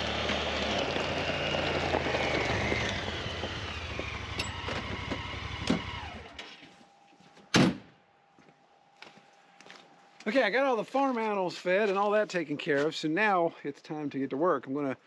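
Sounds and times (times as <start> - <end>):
tyres on gravel: 0.0 - 6.4, 9.7 - 13.4
utility vehicle engine running: 0.0 - 6.4.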